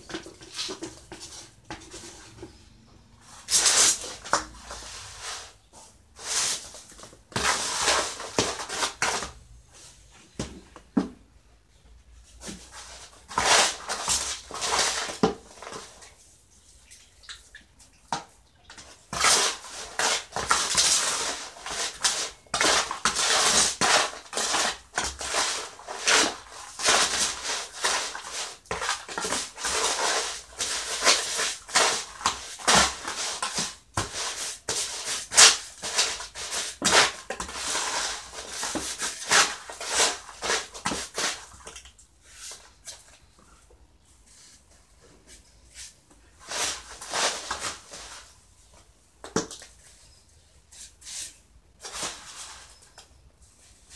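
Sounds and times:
wet cement mix scraping: 0:00.0 - 0:09.4, 0:12.4 - 0:16.9, 0:18.7 - 0:43.3, 0:44.2 - 0:48.4.

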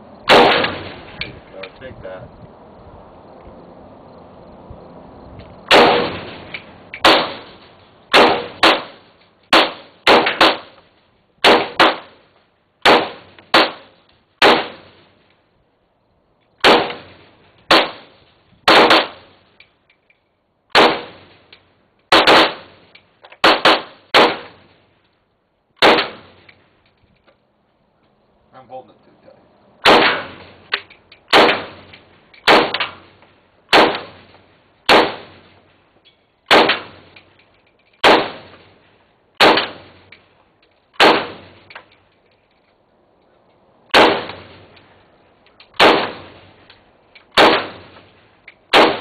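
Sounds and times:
rifle shots with echo: 0:00.3 - 0:01.2, 0:05.7 - 0:10.8, 0:11.4 - 0:12.2, 0:12.8 - 0:15.0, 0:16.6 - 0:19.3, 0:20.7 - 0:21.3, 0:22.1 - 0:22.8, 0:23.4 - 0:24.7, 0:25.8 - 0:26.4, 0:29.8 - 0:30.7, 0:31.3 - 0:35.5, 0:36.5 - 0:37.2, 0:38.0 - 0:38.8, 0:39.4 - 0:40.1, 0:41.0 - 0:41.7, 0:43.9 - 0:44.7, 0:45.8 - 0:46.6, 0:47.3 - 0:48.1, 0:48.7 - 0:49.0.

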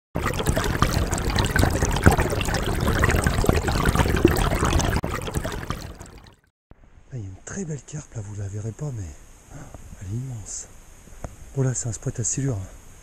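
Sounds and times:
water trickling: 0:00.2 - 0:06.5.

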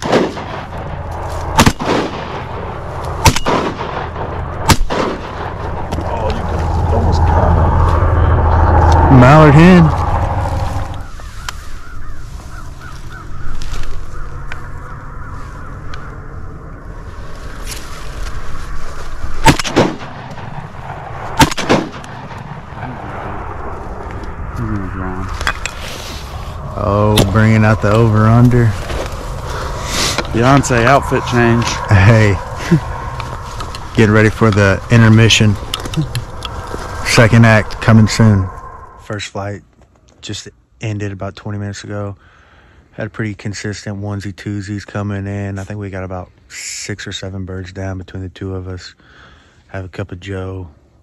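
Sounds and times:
shotgun shots with echo: 0:00.0 - 0:00.9, 0:01.6 - 0:02.6, 0:03.2 - 0:05.7, 0:19.4 - 0:20.3, 0:21.4 - 0:22.4.

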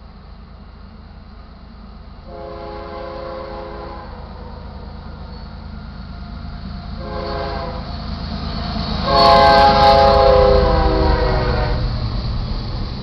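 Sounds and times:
low rumble of locomotive: 0:00.0 - 0:13.0
locomotive air horn blasts: 0:02.3 - 0:04.3, 0:07.0 - 0:07.9, 0:09.0 - 0:12.0.

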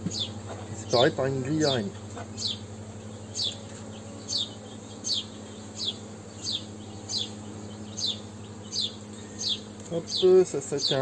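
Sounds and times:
bird chirping: 0:00.0 - 0:11.0
honeybees humming: 0:00.0 - 0:11.0.

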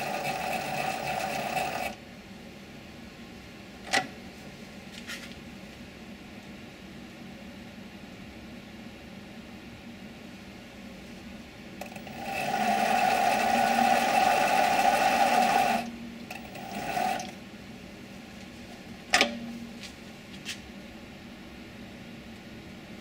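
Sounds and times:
lathe geared whine: 0:00.0 - 0:02.0, 0:11.8 - 0:17.4
sharp metallic clunk: 0:19.1 - 0:19.5.

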